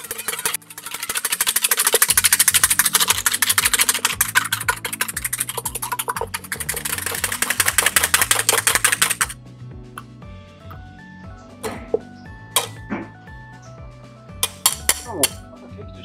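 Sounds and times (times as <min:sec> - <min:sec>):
whisk clattering in metal bowl: 0:00.0 - 0:09.4, 0:12.6 - 0:12.8, 0:14.4 - 0:15.4
background music: 0:00.0 - 0:16.0.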